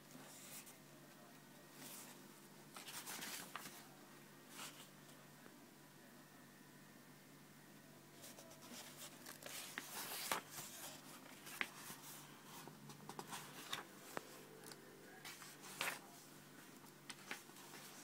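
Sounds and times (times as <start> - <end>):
book pages turning: 1.8 - 3.8, 8.2 - 16.1, 16.8 - 18.0.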